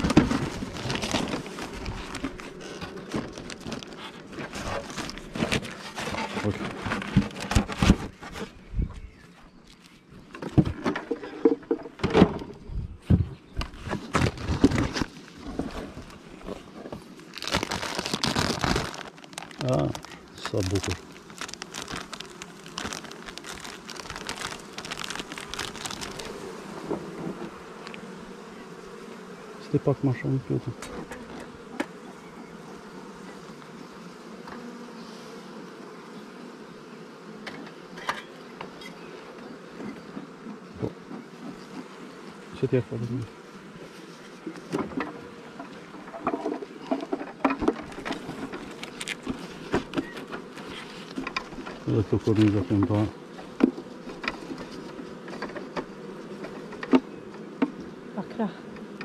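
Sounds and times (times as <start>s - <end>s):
wooden boxes knocking and scraping: 0.0s - 8.6s, 10.3s - 27.1s, 46.0s - 50.5s
bees buzzing: 0.0s - 59.0s.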